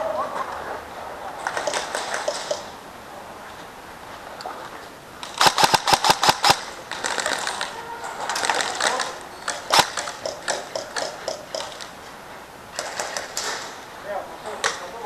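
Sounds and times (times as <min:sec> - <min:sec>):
airsoft gun firing burst: 0:01.5 - 0:02.7, 0:05.2 - 0:07.5, 0:09.5 - 0:11.9, 0:12.7 - 0:13.8.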